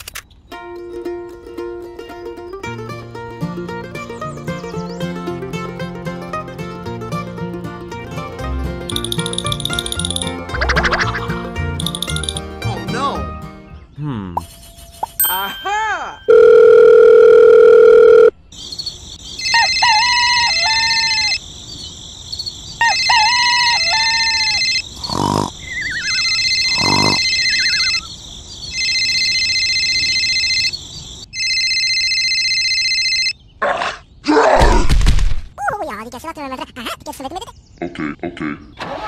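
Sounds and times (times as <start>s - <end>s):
telephone ringtone: 8.9s - 10.4s, 11.8s - 12.4s, 14.7s - 18.4s, 19.4s - 21.4s, 22.8s - 24.8s, 25.8s - 28.1s, 28.7s - 33.4s
dial tone: 16.3s - 18.3s.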